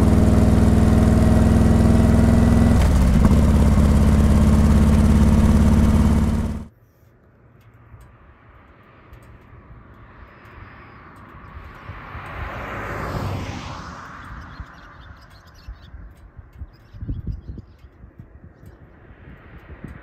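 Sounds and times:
motorcycle engine running: 0.0s - 6.7s
car engine and tyre noise: 0.0s - 20.0s.

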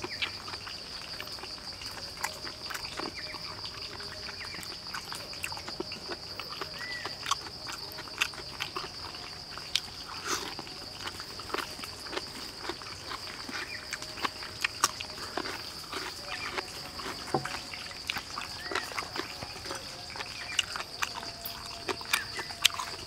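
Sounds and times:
chewing and lip-smacking: 0.0s - 23.0s
high insect drone: 0.0s - 23.0s.

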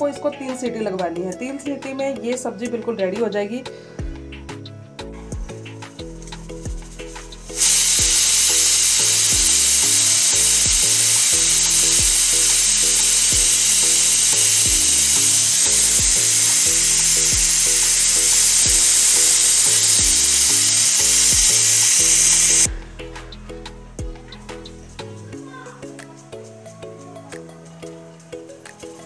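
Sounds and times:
pressure cooker whistle hiss: 7.5s - 22.7s.

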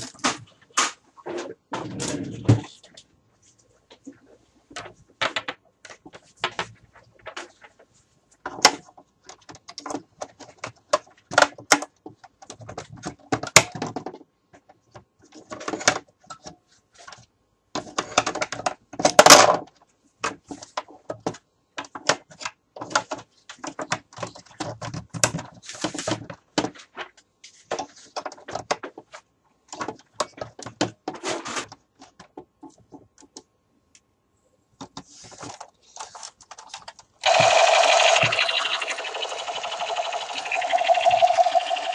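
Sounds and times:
plastic toy clicks and rattles: 36.0s - 41.9s.

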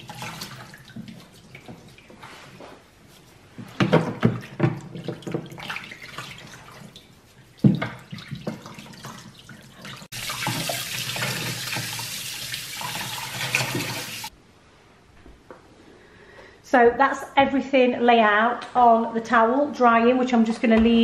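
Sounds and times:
water splashing in a sink: 0.0s - 2.2s, 3.7s - 14.3s.

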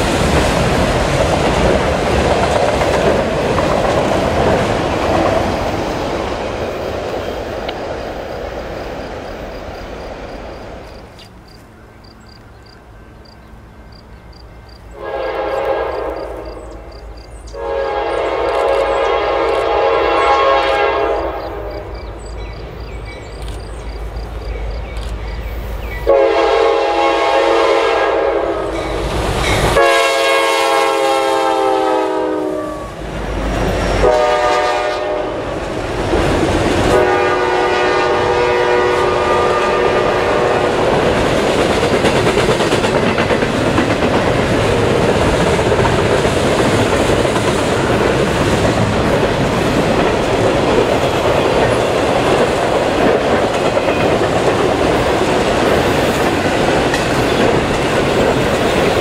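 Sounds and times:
train wheels clattering: 0.0s - 8.8s, 39.0s - 59.0s
locomotive air horn blasts: 14.9s - 16.6s, 17.5s - 21.8s, 26.1s - 28.7s, 29.8s - 33.0s, 33.9s - 35.4s, 36.9s - 40.8s.

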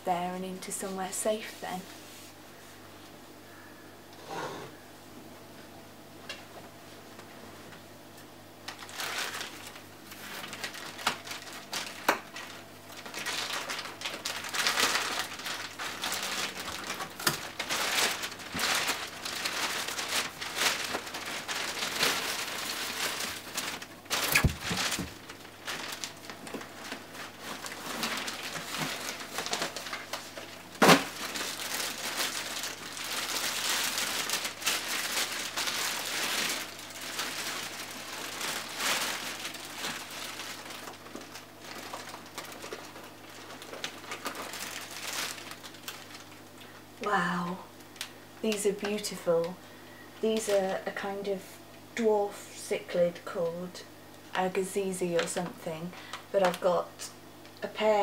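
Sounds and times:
plastic packing crinkling: 8.7s - 47.2s, 50.2s - 51.2s, 54.4s - 57.0s.

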